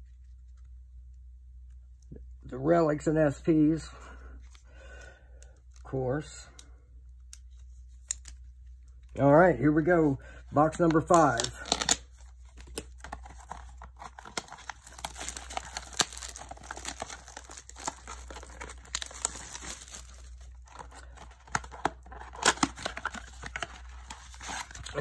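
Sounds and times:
plastic wrap and cardboard ripping: 10.9s - 25.0s.

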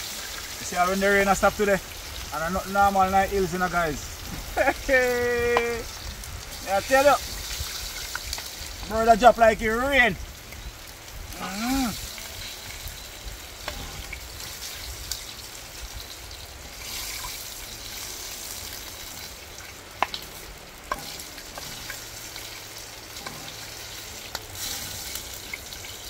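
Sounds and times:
fire crackles: 0.0s - 26.0s
sizzling hiss: 0.0s - 26.0s
person humming: 11.4s - 12.0s.

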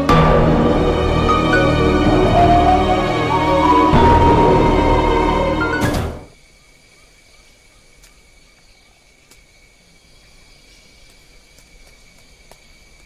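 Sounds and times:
soundtrack music: 0.0s - 6.3s.

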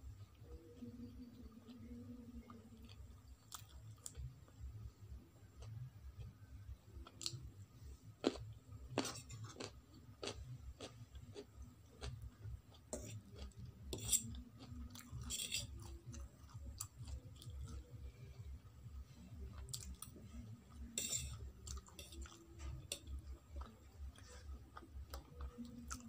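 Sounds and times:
chewing and crunching carrot: 0.2s - 4.6s, 8.2s - 26.0s
fork clinking on ceramic plate: 21.0s - 21.4s.

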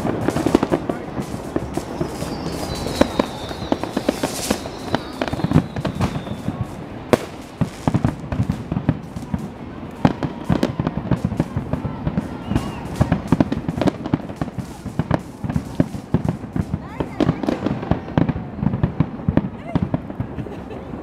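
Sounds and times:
firework whistle falling in pitch: 0.0s - 8.1s, 10.1s - 13.3s
fireworks bangs and crackles: 0.0s - 21.0s.

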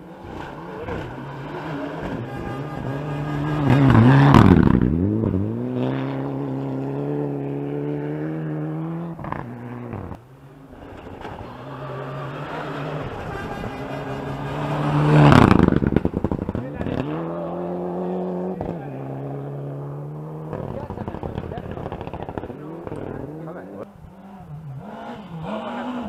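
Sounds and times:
car engine approaching: 0.0s - 26.0s
rally car engine passing: 0.0s - 26.0s.

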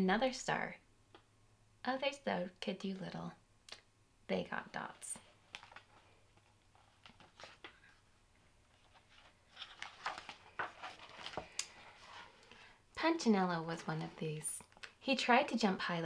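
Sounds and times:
book pages rustling: 5.2s - 12.7s
soft clicks of pages: 5.4s - 8.0s.

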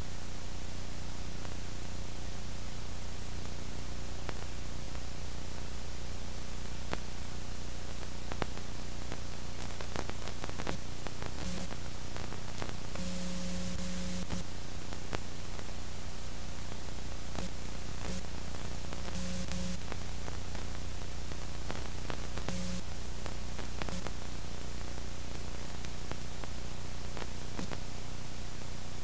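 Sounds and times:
static hiss: 0.0s - 29.0s.

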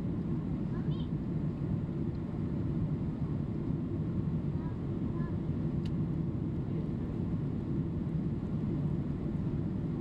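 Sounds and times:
jet cabin engine roar: 0.0s - 10.0s
faint click: 5.8s - 6.0s.

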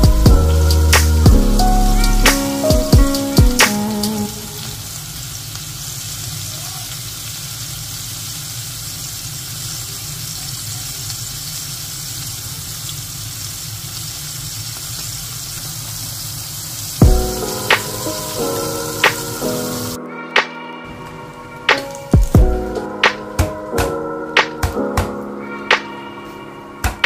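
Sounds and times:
music: 0.0s - 4.8s, 17.0s - 27.0s
food sizzling in hot oil: 0.0s - 20.0s.

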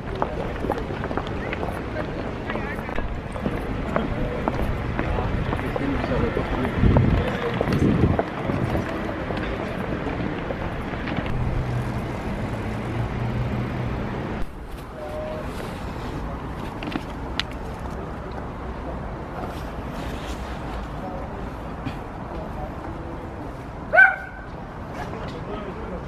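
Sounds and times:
vehicle engine hum: 0.0s - 22.7s
road traffic noise: 0.0s - 26.0s.

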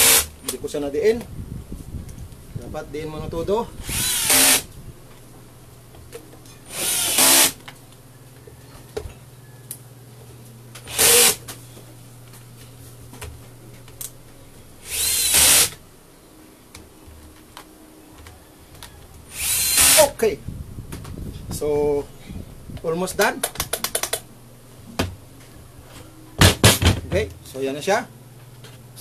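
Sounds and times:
cordless drill driving screws: 0.0s - 0.3s, 3.8s - 4.7s, 6.7s - 7.6s, 10.9s - 11.4s, 14.8s - 15.8s, 19.3s - 20.1s
steady low hum: 0.0s - 29.0s.

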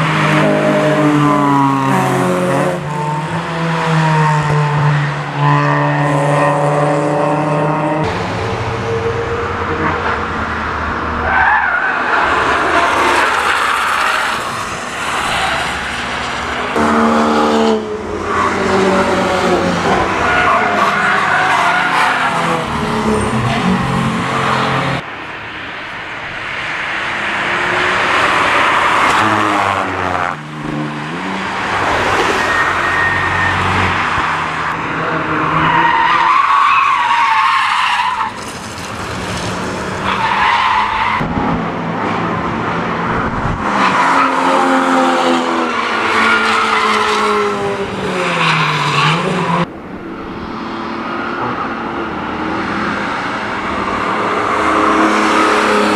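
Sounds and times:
race car engines passing: 0.0s - 55.9s
tires squealing: 11.1s - 25.0s, 27.9s - 42.1s, 43.0s - 49.7s.

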